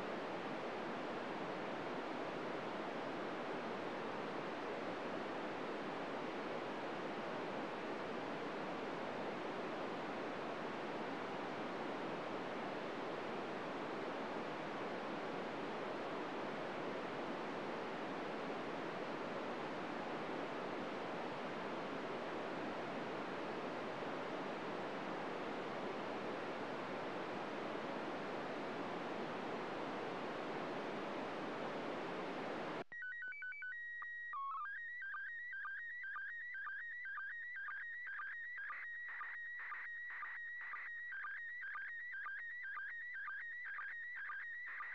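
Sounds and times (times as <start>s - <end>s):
whistling radio transmission tones: 32.9s - 44.9s.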